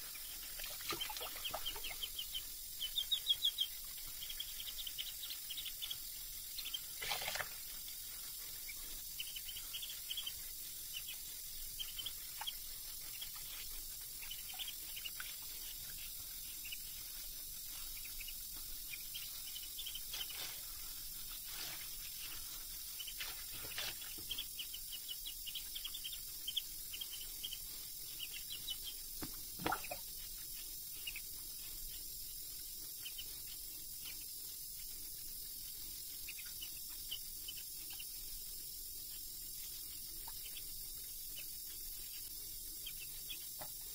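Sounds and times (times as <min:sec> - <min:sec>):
duckling peeping: 0:00.0 - 0:07.6, 0:08.6 - 0:20.6, 0:23.0 - 0:30.1
water splashing: 0:00.6 - 0:02.0, 0:29.6 - 0:30.0.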